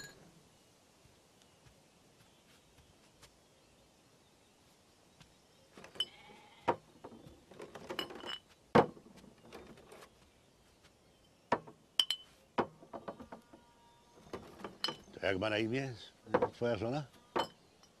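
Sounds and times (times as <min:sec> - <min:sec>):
wooden knocks and clunks: 0:05.7 - 0:10.3, 0:11.4 - 0:15.2, 0:16.2 - 0:17.6.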